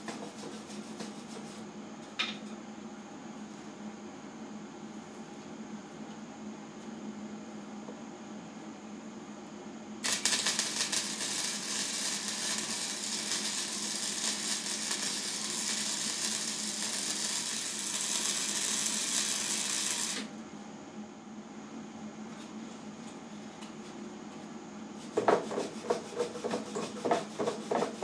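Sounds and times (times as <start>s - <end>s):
welding arc crackling and sizzling: 10.0s - 20.3s.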